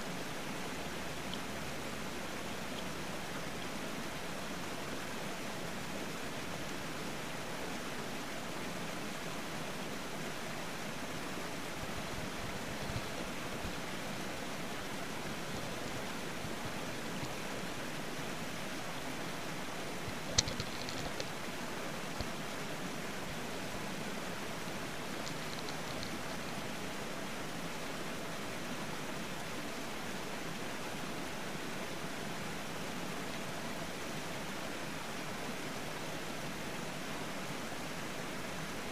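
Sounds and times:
faint clicks: 0:20.0 - 0:21.4, 0:25.1 - 0:26.6.

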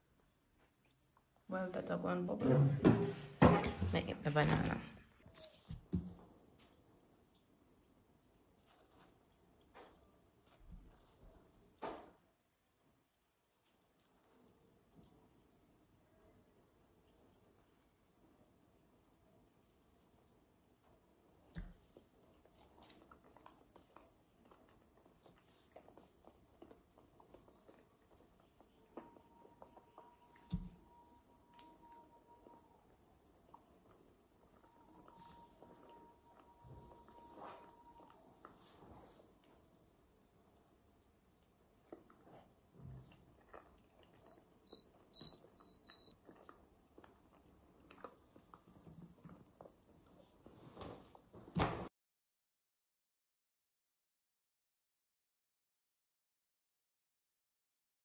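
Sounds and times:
chewing and mouth clicks: 0:21.5 - 0:40.0, 0:40.8 - 0:50.4
short high-pitched chirps: 0:44.2 - 0:46.1.

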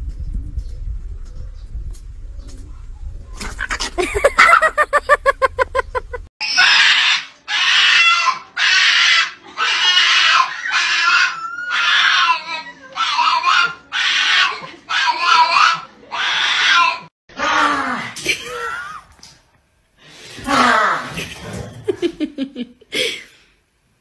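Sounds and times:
dog screaming hoarse cries: 0:06.4 - 0:18.1.

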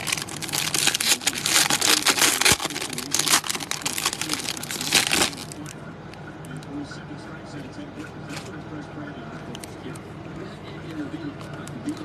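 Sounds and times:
plastic wrapper crinkling: 0:00.0 - 0:05.7.

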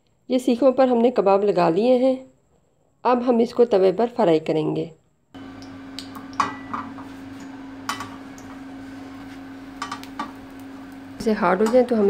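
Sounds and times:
steady low hum: 0:05.4 - 0:12.0.

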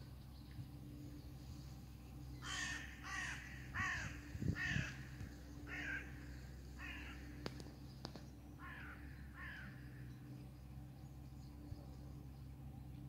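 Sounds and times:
bird calling: 0:02.3 - 0:10.4.

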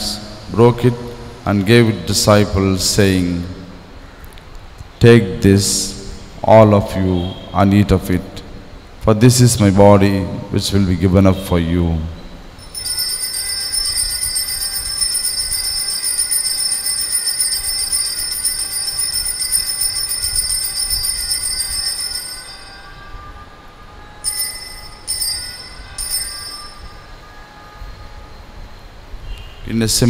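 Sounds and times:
altar bells ringing: 0:12.6 - 0:28.4.

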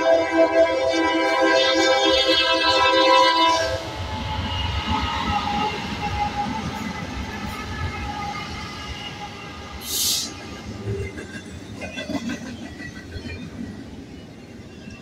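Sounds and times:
locomotive air horn: 0:00.0 - 0:10.4
train wheels on rails: 0:00.0 - 0:15.0.

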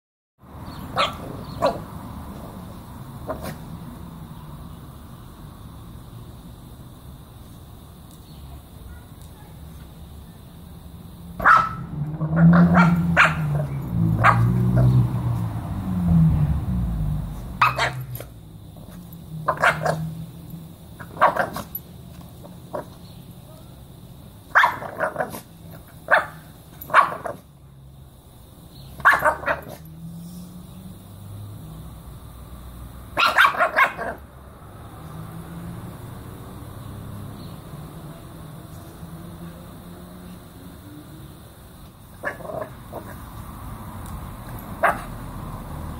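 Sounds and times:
small dog yapping: 0:11.4 - 0:15.0, 0:17.6 - 0:18.2, 0:19.5 - 0:20.0, 0:24.5 - 0:25.5, 0:26.1 - 0:27.4, 0:29.0 - 0:29.8, 0:33.2 - 0:34.2, 0:44.8 - 0:45.1.

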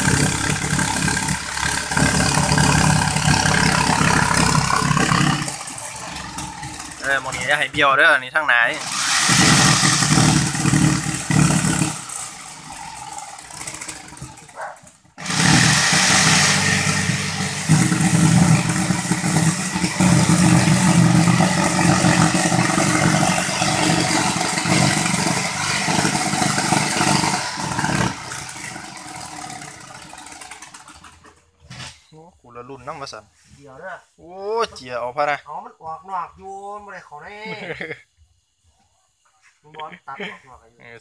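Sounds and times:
electric jigsaw cutting board: 0:00.0 - 0:07.5, 0:08.7 - 0:31.2.

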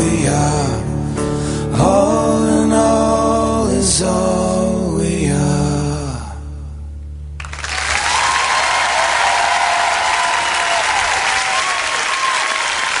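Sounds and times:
low hum: 0:00.2 - 0:09.1
audience applause and cheering: 0:07.4 - 0:13.0.

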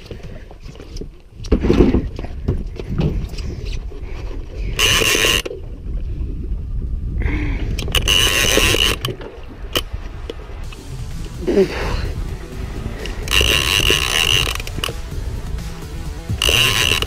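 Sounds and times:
low rumble of wind and boat: 0:00.0 - 0:17.0
fishing reel buzzing: 0:04.7 - 0:05.5, 0:07.8 - 0:09.1, 0:10.7 - 0:15.1, 0:15.7 - 0:17.0.

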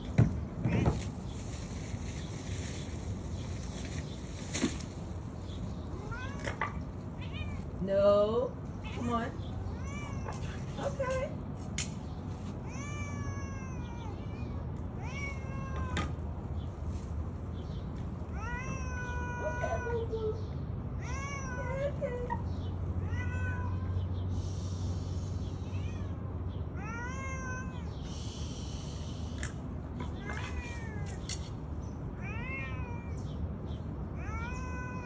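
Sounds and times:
cat meowing: 0:07.2 - 0:07.6, 0:08.8 - 0:10.4, 0:12.7 - 0:16.0, 0:18.3 - 0:20.4, 0:23.0 - 0:24.0, 0:26.8 - 0:27.9, 0:32.2 - 0:33.3.

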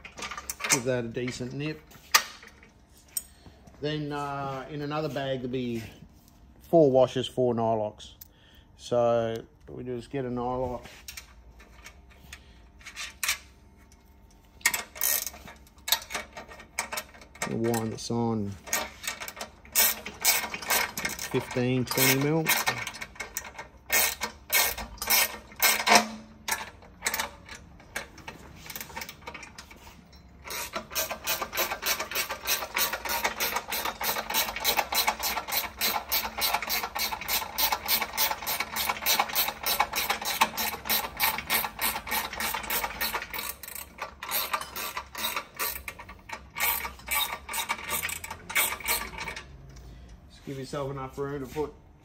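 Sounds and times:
ratchet spanner clicking: 0:14.6 - 0:17.9, 0:18.6 - 0:29.4, 0:30.4 - 0:49.8.

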